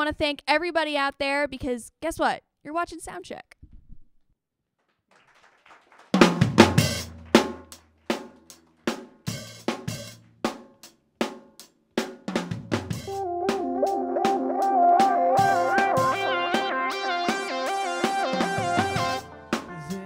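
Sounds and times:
drum kit hits: 6.2s - 8.5s, 12.3s - 20.0s
bass guitar notes: 13.1s - 20.0s
electric guitar: 13.1s - 20.0s.

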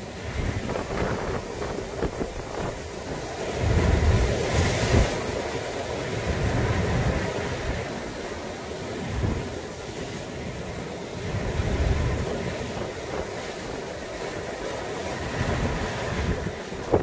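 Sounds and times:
wind buffeting microphone: 0.0s - 5.5s, 11.2s - 17.0s
surf breaking over rocks: 0.0s - 17.0s.

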